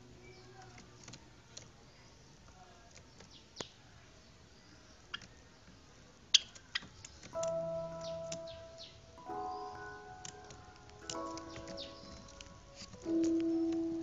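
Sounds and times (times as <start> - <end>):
sparrows chirping: 0.0 - 14.0
music: 7.4 - 14.0.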